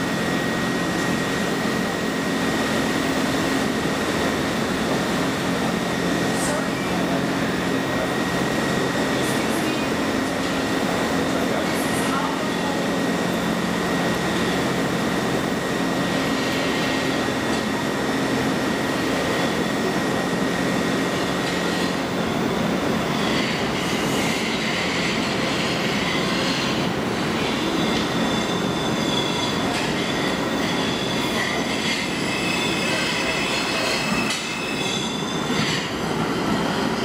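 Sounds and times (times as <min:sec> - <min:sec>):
train wheels rumbling on rails: 0:00.2 - 0:37.0
high wheel squealing: 0:27.4 - 0:37.0.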